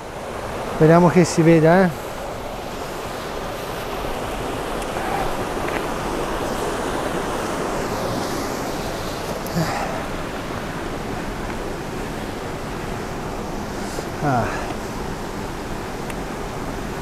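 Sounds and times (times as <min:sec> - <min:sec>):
stream water flowing: 0:00.0 - 0:17.0.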